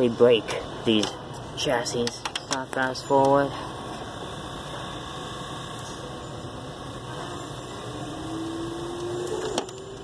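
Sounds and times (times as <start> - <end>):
vcr mechanical whir: 1.8 - 10.0
thin motor tone: 2.8 - 10.0.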